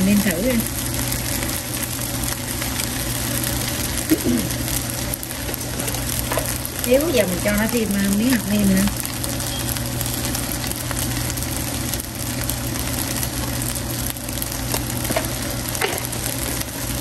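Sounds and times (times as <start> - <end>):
rice sizzling in a pan: 0.0 - 17.0
steady low hum: 0.0 - 17.0.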